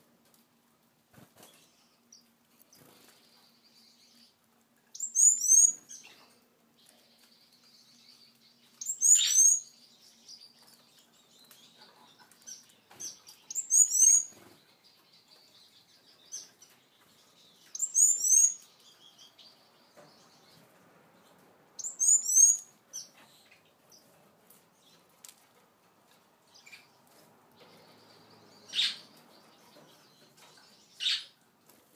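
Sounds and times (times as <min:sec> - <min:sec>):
finches chirping: 0:02.8 - 0:06.2, 0:07.1 - 0:20.6, 0:21.8 - 0:24.0, 0:27.6 - 0:31.4.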